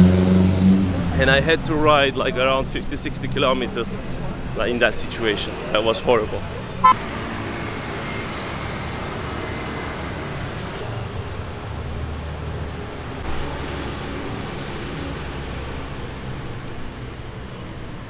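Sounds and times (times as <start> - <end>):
street traffic passing: 0.0 - 18.0.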